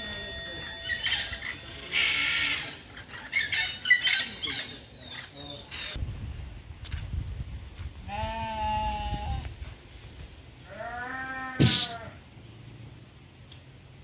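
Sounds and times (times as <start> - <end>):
goat bleating: 10.7 - 12.2.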